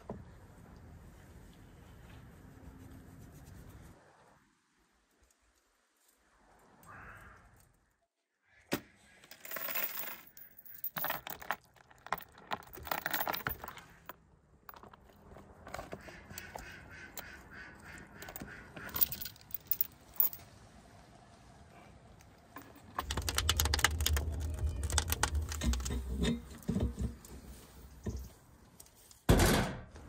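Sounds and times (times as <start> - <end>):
metal hook and chain clinking: 9.3 - 15.8, 18.2 - 20.4.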